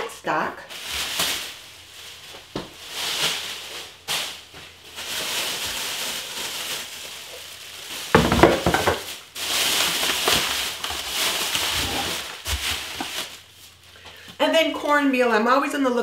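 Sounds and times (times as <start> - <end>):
plastic bags rustling: 0.3 - 15.3
knocks and thuds: 8.1 - 9.1.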